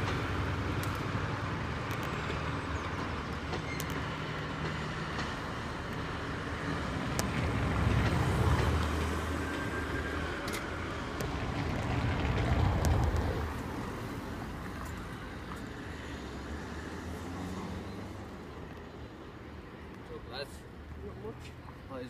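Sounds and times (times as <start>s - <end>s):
freight train rumbling: 0.0s - 15.9s
road traffic: 0.0s - 22.0s.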